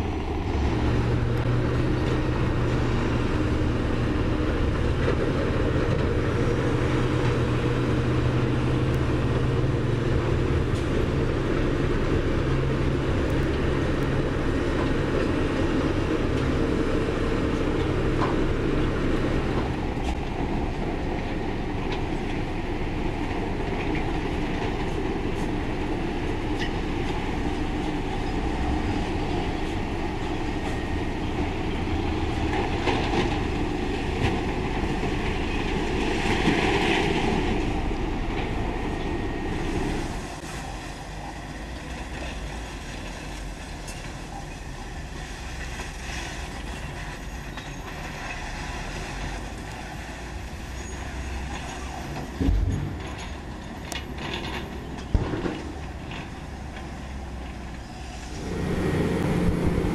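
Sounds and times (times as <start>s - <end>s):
bulldozer diesel engine under load: 0.0s - 59.9s
steel tracks clanking: 0.0s - 59.9s.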